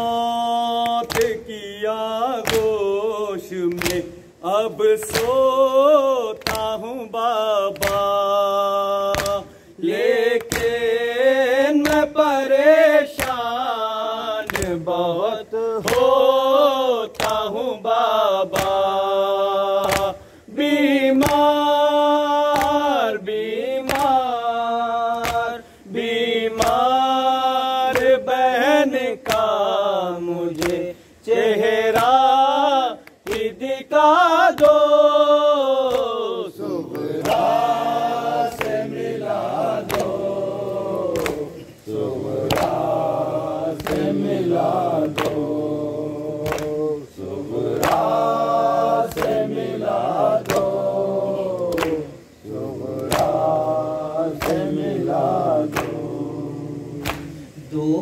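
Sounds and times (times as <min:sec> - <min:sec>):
man chanting a lament: 0:00.0 - 0:58.0
chest-beating slaps: 0:00.8 - 0:01.4, 0:03.7 - 0:04.2, 0:05.0 - 0:05.4, 0:07.8 - 0:08.2, 0:09.1 - 0:09.6, 0:10.4 - 0:10.8, 0:18.5 - 0:18.9, 0:19.8 - 0:20.2, 0:23.9 - 0:24.2, 0:25.2 - 0:25.6, 0:26.6 - 0:27.0, 0:30.6 - 0:30.8, 0:38.5 - 0:38.9, 0:39.6 - 0:43.0, 0:43.8 - 0:44.2, 0:45.0 - 0:45.6, 0:46.4 - 0:46.8, 0:50.4 - 0:50.8, 0:51.6 - 0:53.5, 0:54.4 - 0:54.7, 0:57.0 - 0:57.6.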